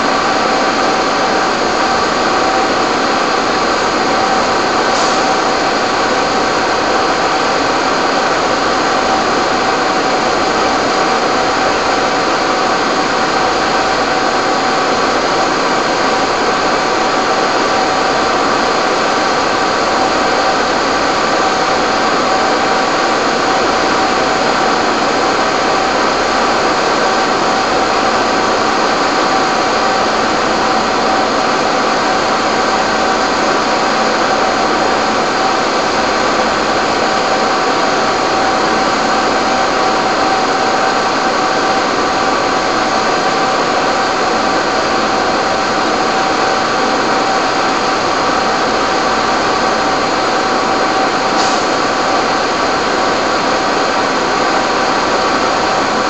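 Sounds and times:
fire engine pumps running: 0.0 - 56.0.

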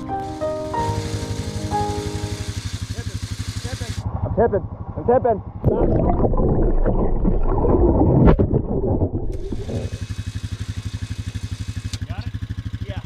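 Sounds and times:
engine chugging idle: 0.9 - 5.6, 9.8 - 13.0
muffled gurgling engine underwater: 4.0 - 10.4.

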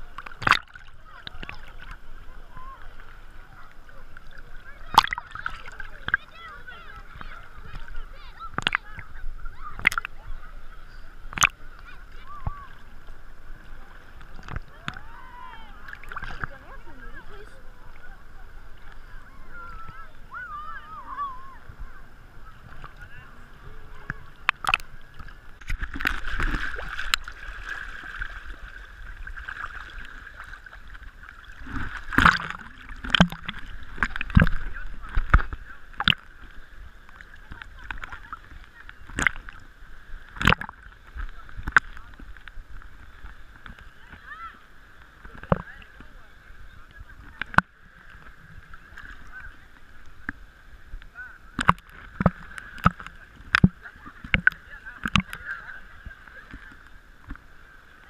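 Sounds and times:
sea waves sloshing: 0.0 - 58.0
waves splashing on camera: 0.0 - 58.0
water knocking against camera: 0.2 - 1.6, 9.7 - 10.2, 31.7 - 36.4, 37.5 - 39.6, 40.3 - 40.8, 45.3 - 46.1, 51.6 - 55.6.

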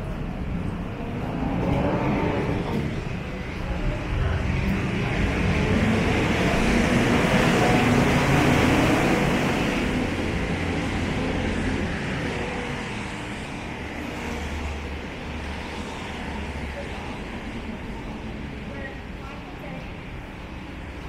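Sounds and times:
vehicle passing by rumbling: 0.2 - 16.7.

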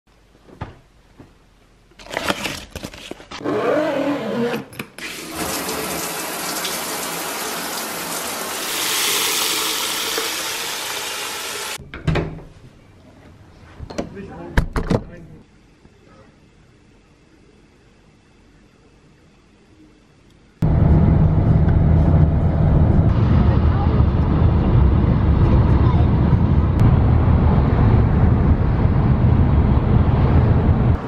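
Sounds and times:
shower head spraying water: 5.2 - 11.8.

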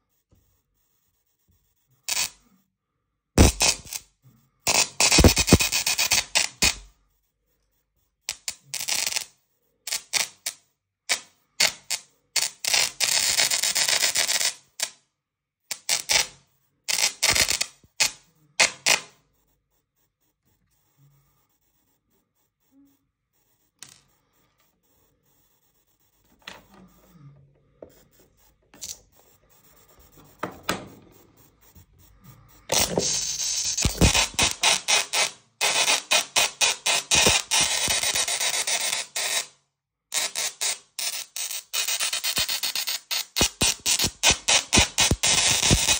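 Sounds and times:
tesla coil arcs buzzing: 2.1 - 2.4, 3.4 - 4.1, 4.7 - 6.9, 8.3 - 15.0, 15.7 - 19.2, 28.0 - 39.5, 40.1 - 45.9.

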